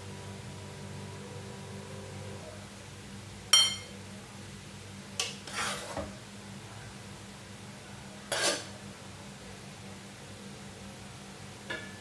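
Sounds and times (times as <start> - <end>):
steady low hum: 0.0 - 5.1.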